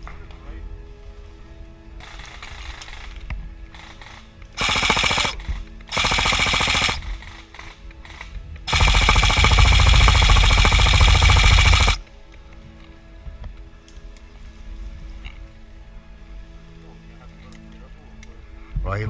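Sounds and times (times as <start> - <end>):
airsoft gun firing full auto: 3.8 - 12.0.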